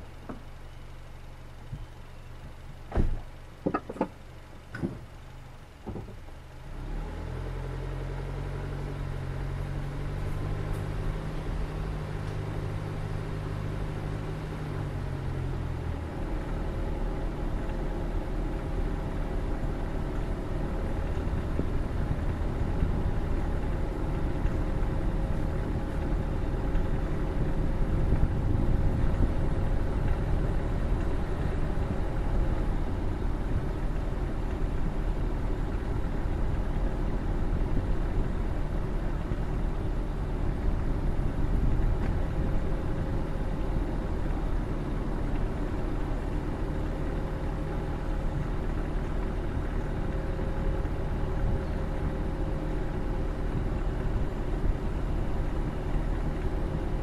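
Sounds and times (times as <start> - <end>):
car driving road rumble: 0.0 - 57.0
car engine idling: 0.0 - 57.0
sharp knocks: 2.9 - 4.2.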